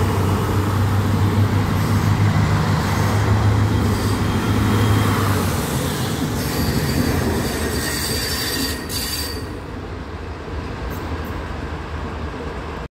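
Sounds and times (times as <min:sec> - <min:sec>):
train wheels rumbling on rails: 0:00.0 - 0:12.9
high wheel squeal: 0:05.8 - 0:09.6.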